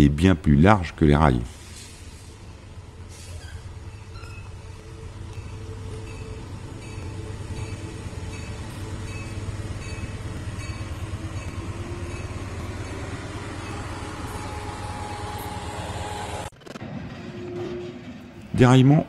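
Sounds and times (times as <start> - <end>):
diesel locomotive rumble: 0.0 - 18.6
sustained tone: 3.9 - 16.5
level-crossing bell ringing: 5.3 - 15.7.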